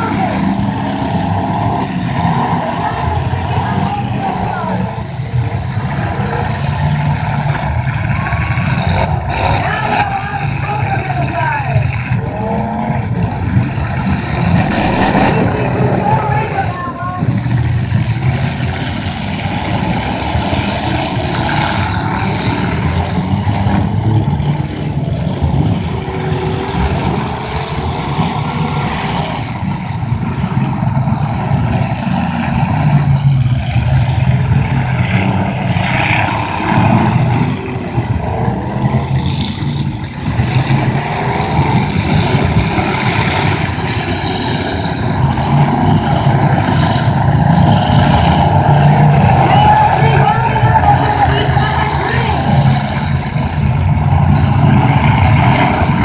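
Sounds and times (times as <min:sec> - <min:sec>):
car engines revving hard: 0:00.0 - 0:56.0.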